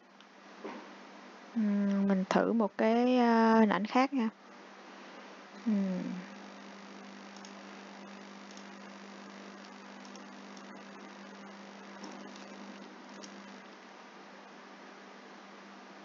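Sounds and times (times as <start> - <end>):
background hiss: 0.0 - 16.0
electrical hum: 0.0 - 16.0
faint clicks: 7.2 - 7.6, 8.4 - 13.6.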